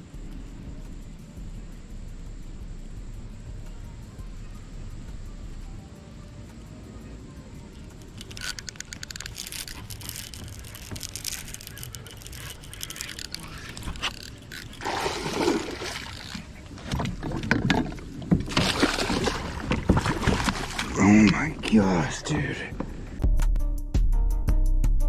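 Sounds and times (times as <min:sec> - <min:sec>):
fishing reel clicking and rattling: 0:07.7 - 0:14.8, 0:15.4 - 0:18.1
fish splashing at water surface: 0:09.7 - 0:21.3.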